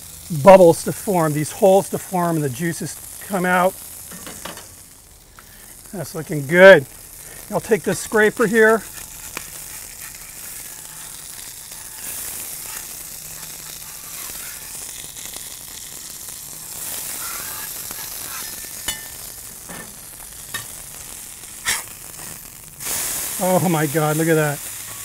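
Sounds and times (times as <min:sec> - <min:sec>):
beef patties sizzling on griddle: 0:00.0 - 0:25.0
steel scraper on griddle: 0:04.0 - 0:04.8, 0:07.2 - 0:20.8, 0:21.6 - 0:25.0.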